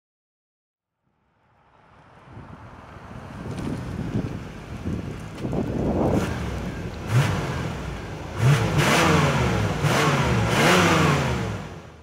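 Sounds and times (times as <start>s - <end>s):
engine revving: 4.8s - 12.0s.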